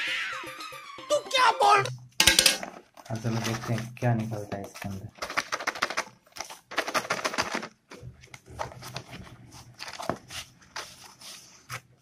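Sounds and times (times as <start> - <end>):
packing tape and cardboard rustling: 2.8 - 12.0.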